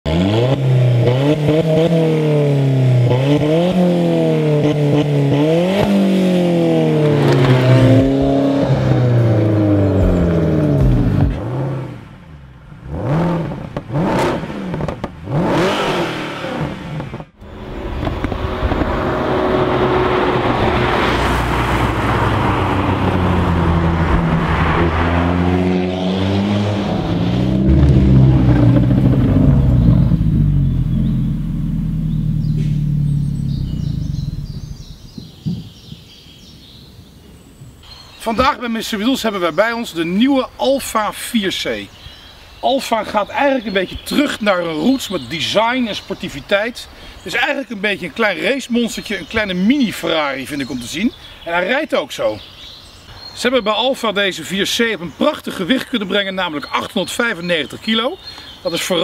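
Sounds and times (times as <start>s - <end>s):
car engine revving: 0.0s - 35.3s
road noise: 0.0s - 59.0s.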